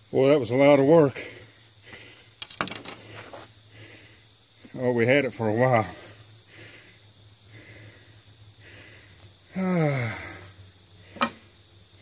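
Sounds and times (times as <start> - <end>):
insects droning: 0.0 - 12.0
man groaning: 9.5 - 10.4.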